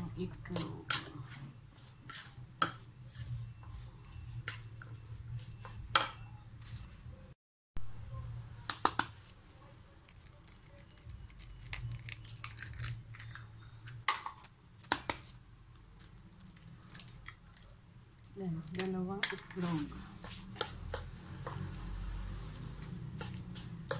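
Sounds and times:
eggshell crackling: 10.0 - 15.2.

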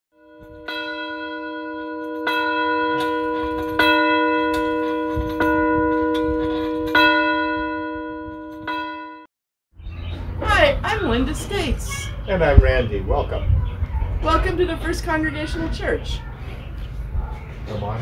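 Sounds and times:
church bell tolling: 0.2 - 9.3.

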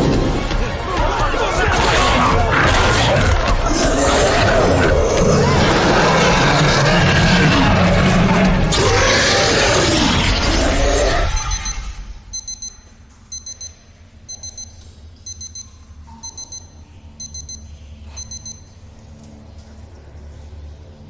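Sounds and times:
low steady drone: 3.4 - 21.0
high electronic beeps: 11.2 - 18.8.

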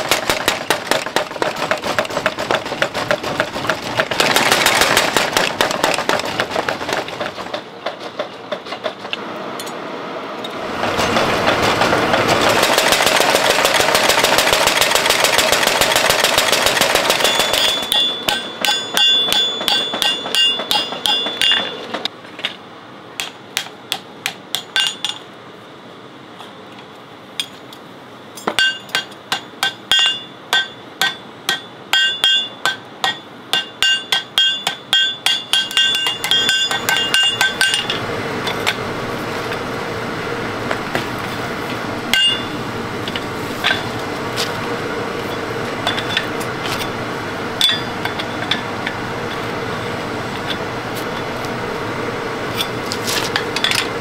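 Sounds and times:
steady noise: 9.1 - 54.0
hammer striking iron on anvil: 16.1 - 22.0, 23.2 - 25.2, 28.4 - 38.8, 42.1 - 43.9, 45.8 - 46.3, 47.6 - 49.0.

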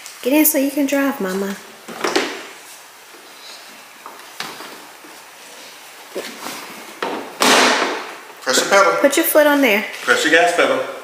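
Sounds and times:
hard plastic knocks and scuffs: 4.0 - 5.2, 6.1 - 8.2.

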